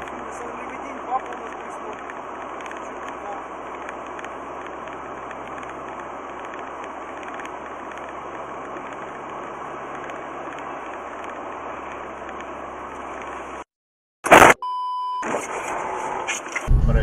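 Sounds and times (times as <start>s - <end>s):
car road and engine noise: 0.0s - 13.7s, 14.3s - 17.0s.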